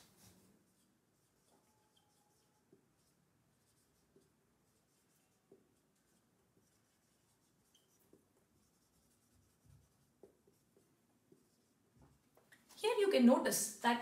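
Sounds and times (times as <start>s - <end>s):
marker scratching on whiteboard: 0.0s - 12.2s.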